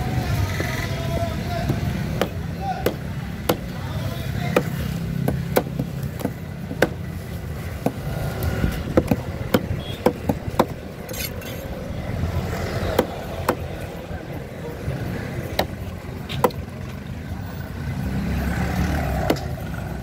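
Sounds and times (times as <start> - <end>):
low traffic rumble: 0.0 - 20.0
knife chopping on wooden block: 1.6 - 3.7, 4.5 - 7.0, 7.8 - 10.8, 12.9 - 13.7.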